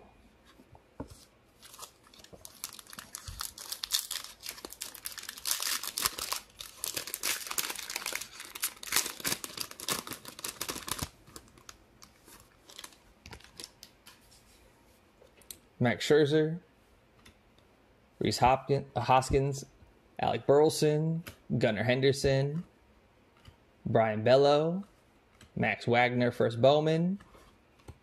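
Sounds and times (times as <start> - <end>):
foil wrapper tearing and crinkling: 1.6 - 13.9.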